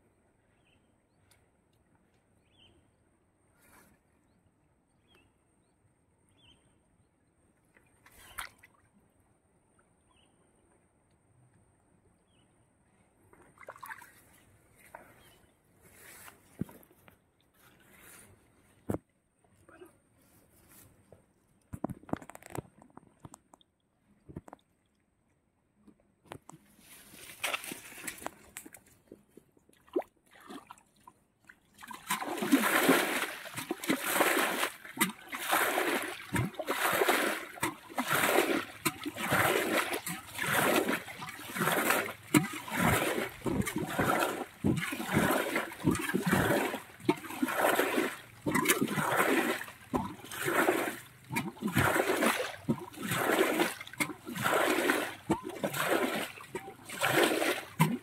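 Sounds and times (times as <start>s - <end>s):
pond water splashing: 7.9s - 9.1s, 13.2s - 19.0s, 26.3s - 58.0s.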